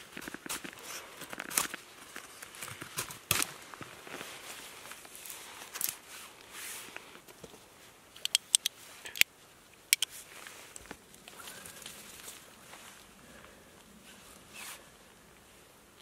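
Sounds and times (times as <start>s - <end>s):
sharp metal clicks: 8.2s - 9.3s.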